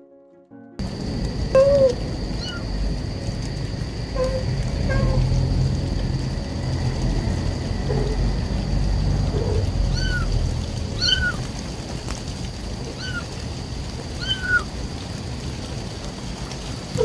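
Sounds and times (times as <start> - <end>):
rain hiss: 0.8 - 17.0
kitten mewing: 1.6 - 2.6, 4.2 - 5.2, 7.9 - 8.2, 9.4 - 10.3, 11.0 - 11.4, 13.0 - 13.3.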